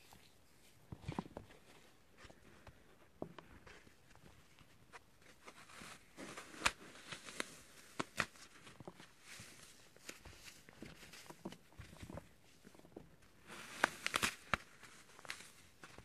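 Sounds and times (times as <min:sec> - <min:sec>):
floral foam crunching and crackling: 0:05.2 - 0:16.0
foam snapping: 0:13.7 - 0:15.3.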